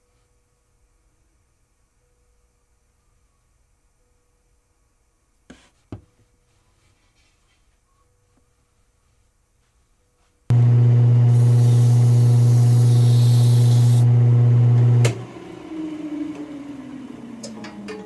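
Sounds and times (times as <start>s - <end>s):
wood lathe motor humming: 10.5s - 17.9s
sandpaper hissing on turning wood: 11.3s - 14.0s.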